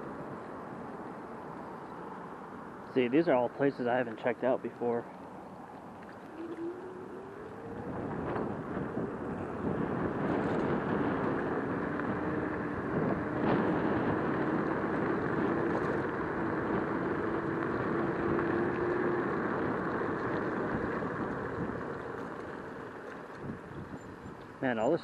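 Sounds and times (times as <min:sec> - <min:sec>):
faint rising whine: 0:00.0 - 0:23.3
scooter tyre noise: 0:04.2 - 0:24.7
wind over microphone: 0:05.8 - 0:25.0.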